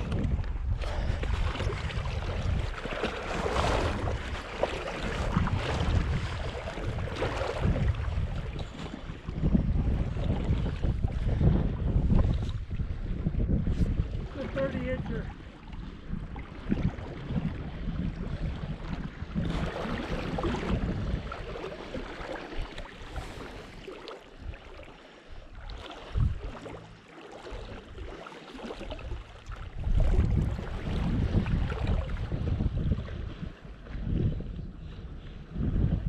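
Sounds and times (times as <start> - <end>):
water sloshing around legs: 0.0 - 11.4, 18.4 - 32.4
wind buffeting microphone: 0.0 - 36.0.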